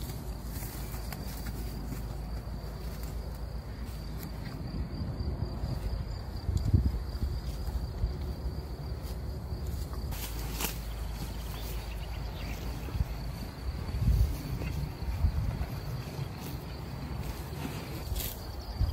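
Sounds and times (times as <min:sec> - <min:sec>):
high insect trill: 0:00.0 - 0:18.9
horses tearing and chewing grass: 0:00.0 - 0:18.9.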